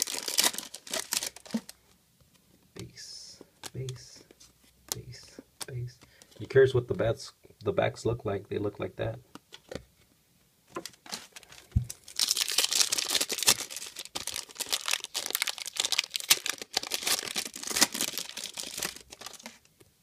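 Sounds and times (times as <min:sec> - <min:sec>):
foil wrapper tearing and crinkling: 0:00.0 - 0:01.7, 0:11.0 - 0:19.6.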